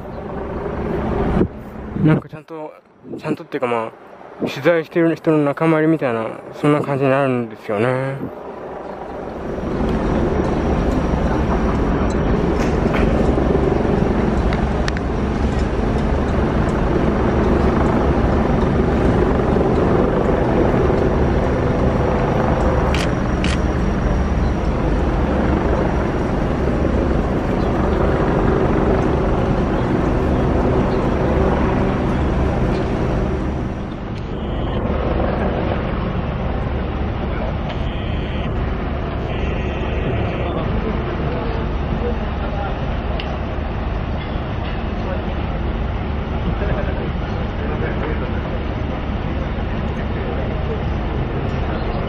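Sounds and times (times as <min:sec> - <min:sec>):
large engine humming: 0:03.2 - 0:52.0.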